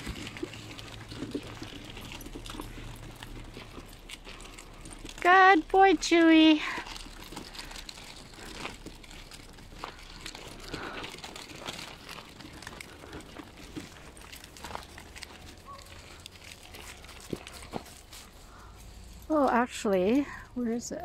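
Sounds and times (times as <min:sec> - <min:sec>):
footsteps on gravel and leaves: 0:00.0 - 0:20.5
dog paws on gravel: 0:00.0 - 0:21.0.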